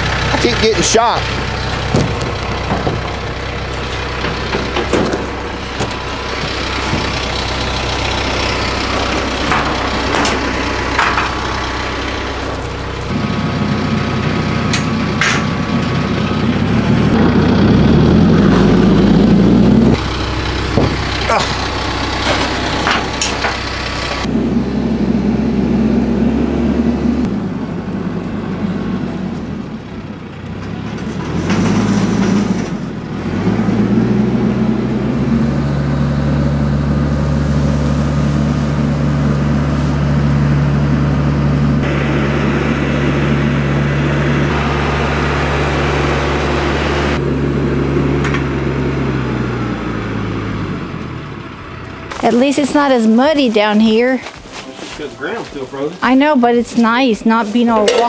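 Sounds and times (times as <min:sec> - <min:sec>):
diesel tractor engine running: 0:00.0 - 0:58.0
sharp clanks: 0:01.8 - 0:12.8, 0:14.6 - 0:15.9, 0:22.2 - 0:24.3, 0:57.7 - 0:58.0.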